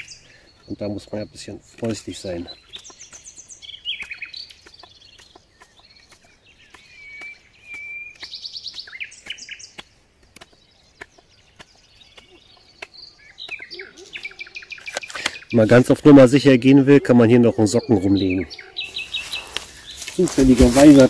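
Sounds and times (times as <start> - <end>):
birds singing: 0.0 - 21.0.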